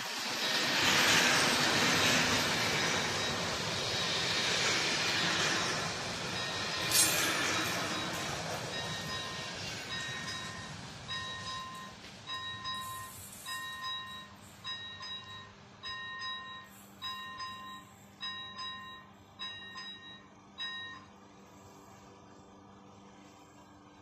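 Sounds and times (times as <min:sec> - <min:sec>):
level crossing bell ringing: 0:08.8 - 0:21.1.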